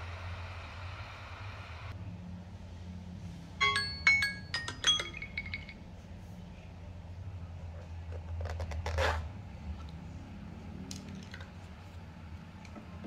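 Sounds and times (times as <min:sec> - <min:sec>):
phone alarm chiming notes: 0:03.6 - 0:05.8.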